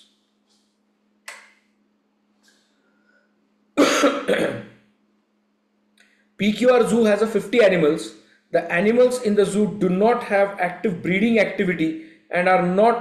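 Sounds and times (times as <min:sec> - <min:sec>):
faint steady hum: 0:00.0 - 0:13.0
man coughing: 0:03.8 - 0:04.7.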